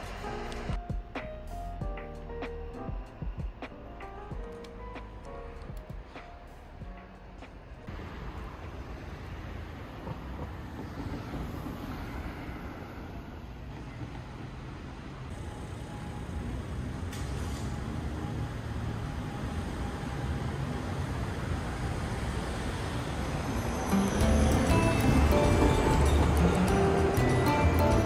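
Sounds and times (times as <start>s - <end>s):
street traffic rumble: 0.0s - 1.3s, 1.9s - 28.0s
background music: 0.0s - 7.9s, 23.9s - 28.0s.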